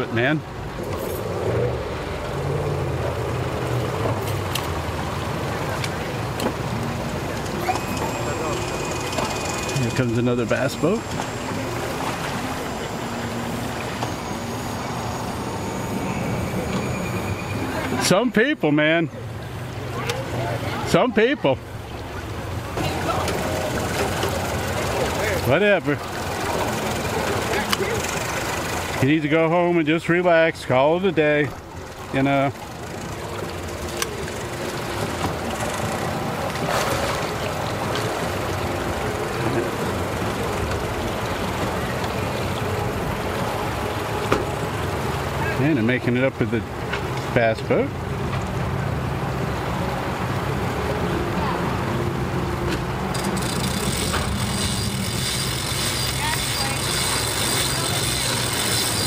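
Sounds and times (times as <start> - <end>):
outboard motor idling: 0.0 - 59.0
engine idling: 21.6 - 29.2, 52.2 - 59.0.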